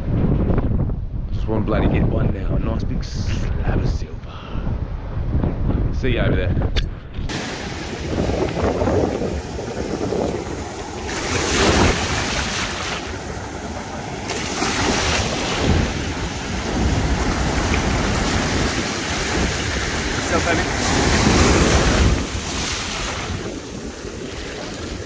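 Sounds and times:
wind buffeting microphone: 0.0s - 25.0s
surf washing up beach: 7.3s - 25.0s.

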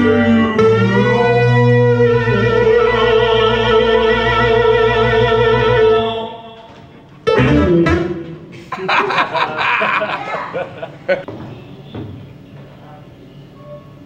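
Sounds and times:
electronic keyboard chord: 0.0s - 6.2s, 7.2s - 8.2s
man singing long note with vibrato: 0.0s - 6.8s
laughter: 8.6s - 11.3s.

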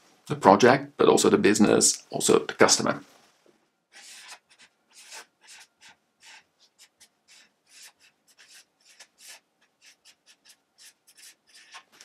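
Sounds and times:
marker pen scratching on paper: 3.9s - 12.0s.

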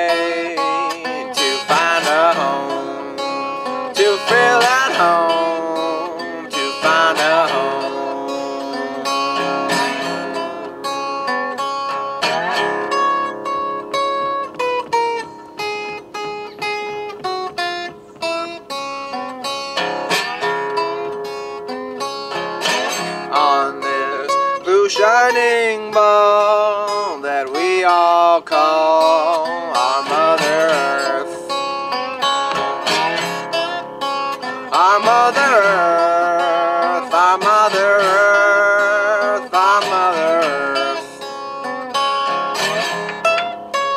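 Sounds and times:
resonator guitar picking: 0.0s - 43.9s.

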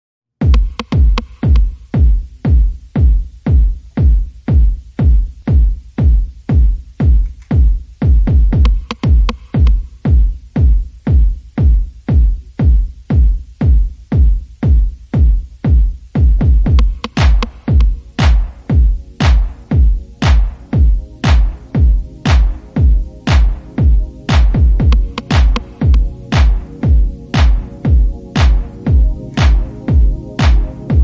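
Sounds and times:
electronic music with heavy kick drum: 0.4s - 31.0s.

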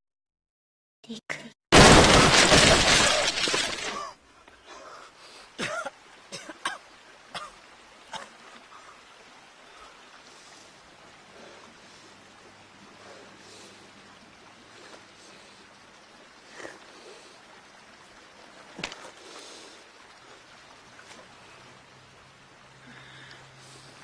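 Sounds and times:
man coughing and gasping: 5.6s - 6.8s.

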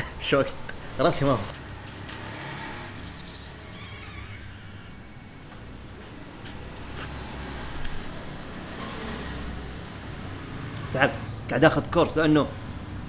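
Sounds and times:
person slurping noodles: 1.5s - 2.4s, 3.0s - 7.2s.

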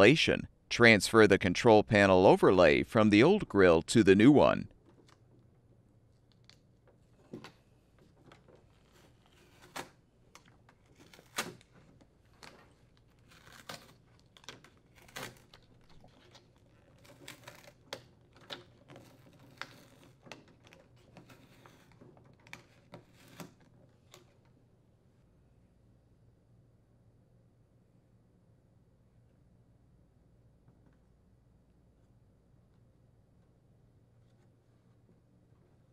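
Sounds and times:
plastic film crinkling and clicking: 7.4s - 24.4s.

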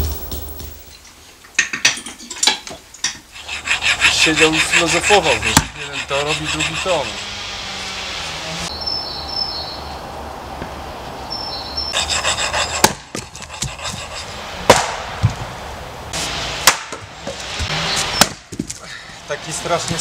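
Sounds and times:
axe splitting logs: 5.5s - 5.8s, 12.1s - 15.4s, 16.6s - 17.0s, 18.0s - 18.8s.

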